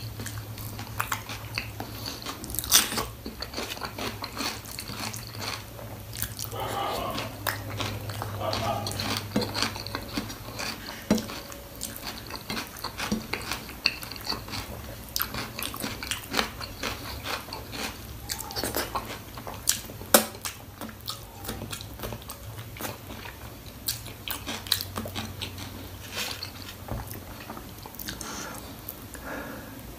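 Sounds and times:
wet chewing and biting: 0.0s - 28.6s
faint low hum: 0.0s - 29.9s.

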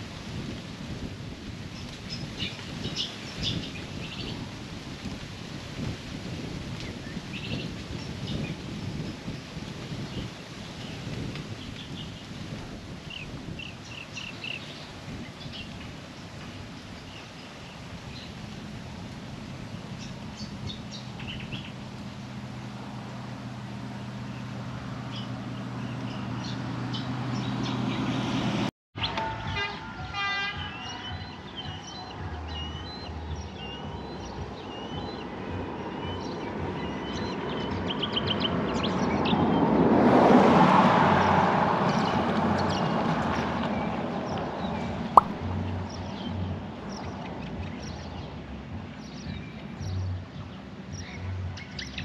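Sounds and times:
low engine hum: 13.4s - 52.0s
vehicle passing: 18.1s - 28.7s, 34.7s - 47.0s
birds chirping: 19.6s - 22.3s, 23.8s - 28.4s, 30.6s - 39.7s.

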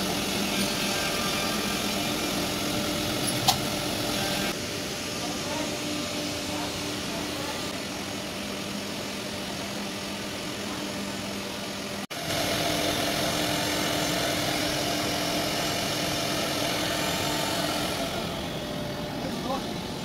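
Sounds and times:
machine hum: 0.0s - 20.0s
router machine whir: 12.2s - 20.0s.

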